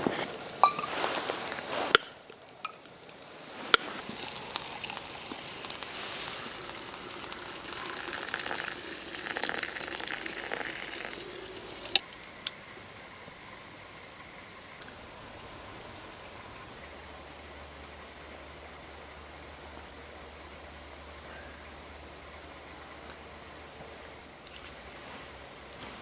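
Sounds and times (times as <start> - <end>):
water pouring into a mug: 4.0 - 12.0.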